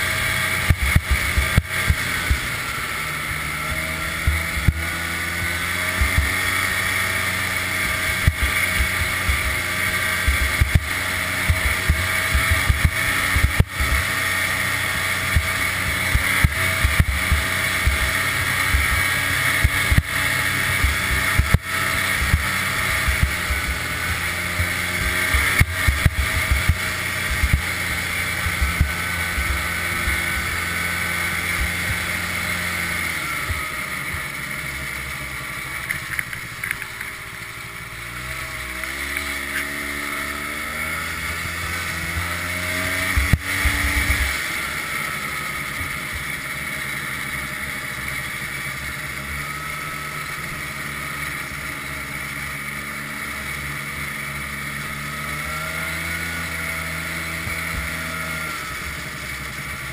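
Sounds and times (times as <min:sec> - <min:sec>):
knocks and thumps of sled: 0:00.0 - 0:34.3
snowmobile engine running: 0:00.0 - 0:59.9.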